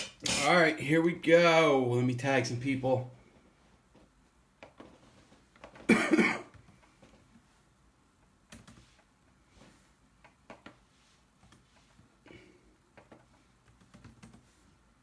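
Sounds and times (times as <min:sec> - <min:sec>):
person coughing: 0:05.9 - 0:06.5
faint typing clicks: 0:13.0 - 0:14.5.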